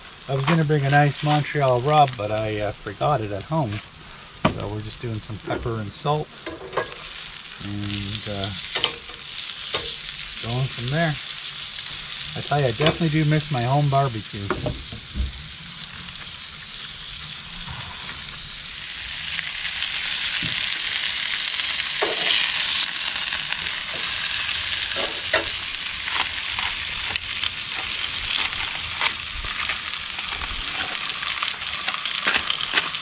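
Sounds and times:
steak sizzling on a grill: 0:00.0 - 0:33.0.

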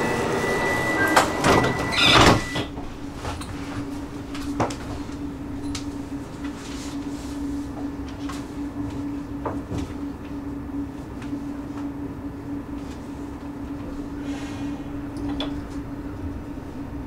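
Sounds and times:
steady high tone: 0:00.0 - 0:02.6
train sliding doors shutting: 0:00.0 - 0:05.0
standing train hum: 0:00.0 - 0:17.0.

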